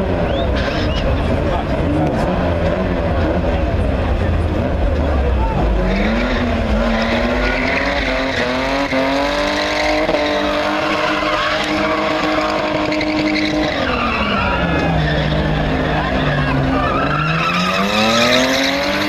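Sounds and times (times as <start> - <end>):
car engine revving: 0.0 - 19.0
tyres squealing: 5.6 - 19.0.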